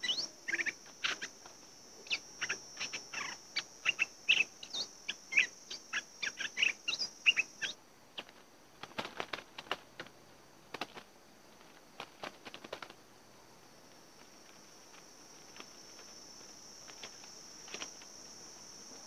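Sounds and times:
bird tapping and fluttering in cage: 0:08.2 - 0:10.1, 0:10.7 - 0:13.0, 0:14.7 - 0:18.1.

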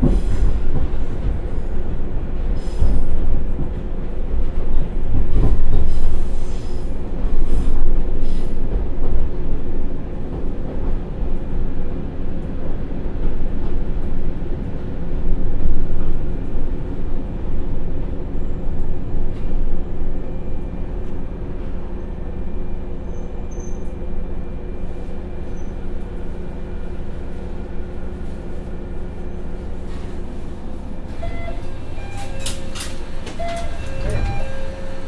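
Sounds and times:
wheel-and-rail rumble: 0:00.0 - 0:35.0
short high tones: 0:31.2 - 0:35.0.

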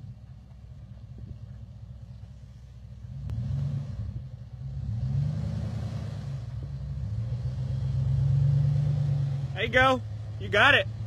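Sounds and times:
truck engine revving: 0:03.0 - 0:11.0.

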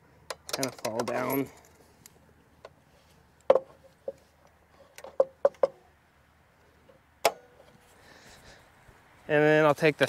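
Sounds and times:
locking pliers clicking and clanking: 0:00.3 - 0:01.7.

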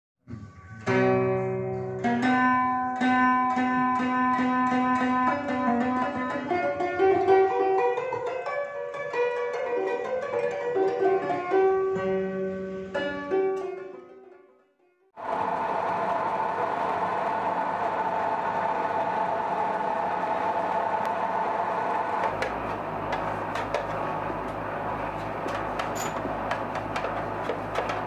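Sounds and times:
plucked string melody: 0:00.7 - 0:15.0, 0:20.9 - 0:28.0.

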